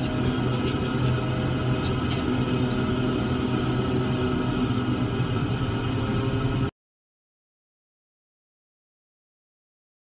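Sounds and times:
aircraft engines droning: 0:00.0 - 0:06.7.

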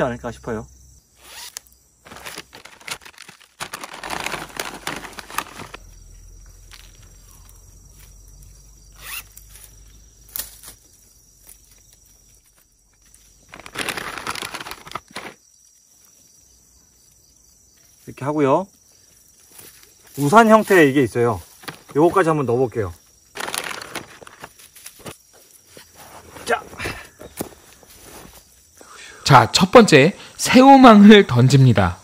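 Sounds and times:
zipper opening and closing: 0:01.2 - 0:01.6, 0:09.0 - 0:09.4
netting rustling: 0:01.2 - 0:05.8, 0:12.4 - 0:15.4, 0:23.3 - 0:26.5.

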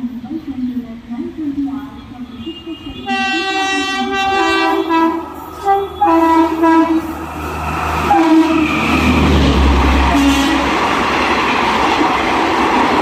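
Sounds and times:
train rumbling: 0:00.0 - 0:13.0
locomotive horn blasts: 0:02.4 - 0:07.1, 0:08.1 - 0:08.8, 0:10.1 - 0:10.7.

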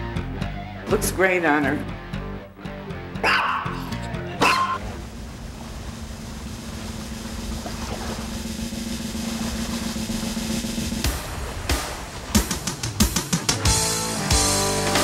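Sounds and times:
drum roll: 0:04.8 - 0:15.0.

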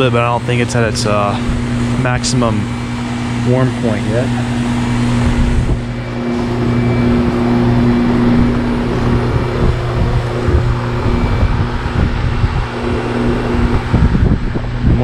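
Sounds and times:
compressor hum: 0:00.0 - 0:15.0
condenser fans rushing: 0:00.0 - 0:15.0
wind buffeting microphone: 0:00.0 - 0:15.0.

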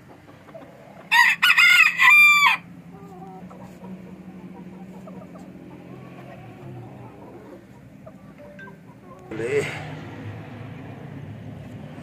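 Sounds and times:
rooster crowing: 0:01.1 - 0:02.7.

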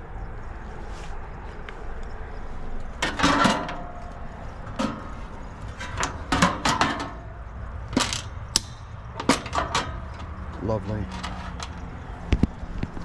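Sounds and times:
sheet metal clanking and rattling: 0:03.0 - 0:11.8.

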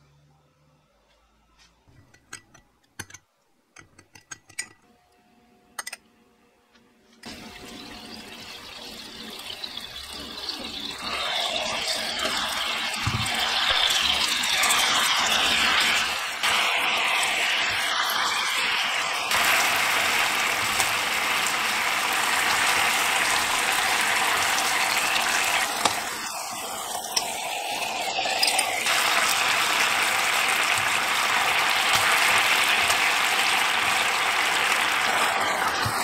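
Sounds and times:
sauce sizzling in frying pan: 0:07.3 - 0:36.0.

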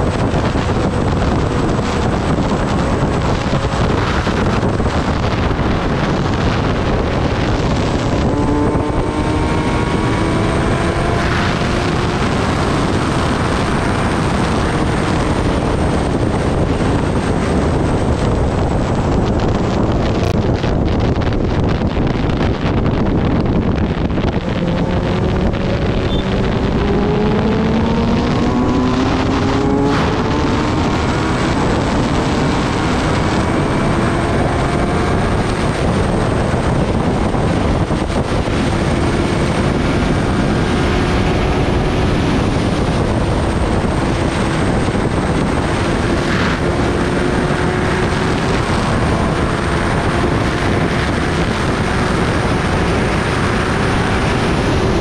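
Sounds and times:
motorcycle engine accelerating: 0:00.0 - 0:55.0
wind noise on microphone: 0:00.0 - 0:55.0.

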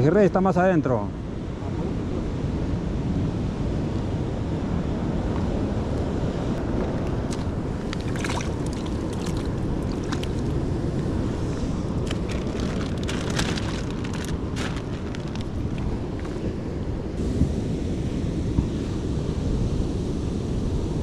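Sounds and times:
wind buffeting microphone: 0:01.5 - 0:21.0
surf on rocky shore: 0:05.6 - 0:21.0
short crackles: 0:12.0 - 0:15.8.

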